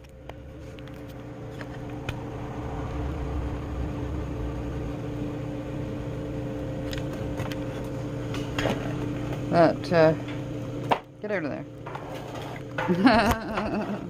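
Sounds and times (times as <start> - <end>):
kitchen appliance humming: 0.0 - 14.0.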